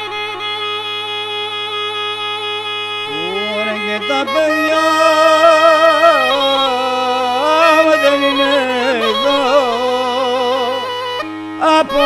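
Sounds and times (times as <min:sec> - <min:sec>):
bagpipe with drone: 0:00.0 - 0:12.0
man singing: 0:03.0 - 0:12.0.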